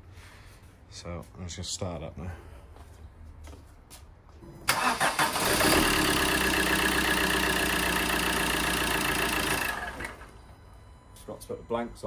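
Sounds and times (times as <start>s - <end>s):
diesel engine cranking and idling: 4.4s - 10.4s.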